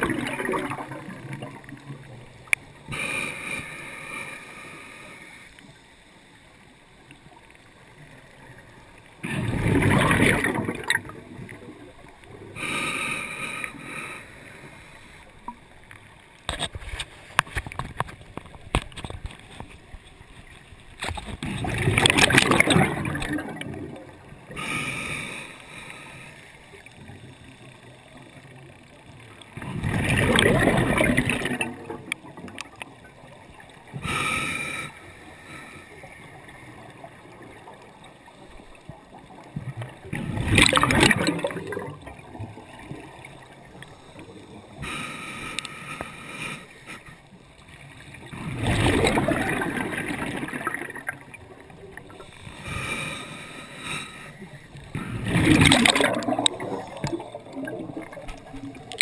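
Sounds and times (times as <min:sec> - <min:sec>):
exhaled bubbles gushing underwater: 0:00.0 - 0:02.9, 0:09.2 - 0:12.8, 0:21.4 - 0:24.6, 0:28.7 - 0:34.0, 0:36.3 - 0:44.7, 0:48.2 - 0:52.4, 0:54.8 - 0:59.0
regulator inhalation hiss: 0:52.2 - 0:55.2.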